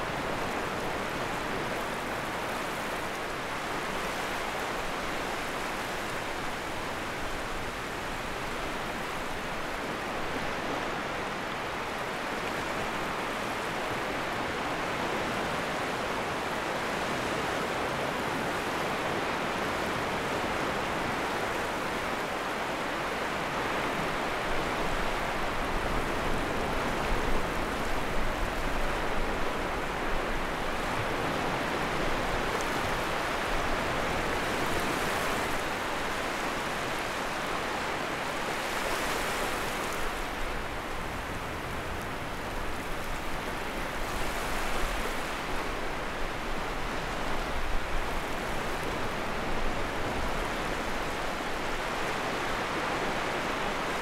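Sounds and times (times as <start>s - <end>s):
sea waves washing onto shore: 0.0s - 54.0s.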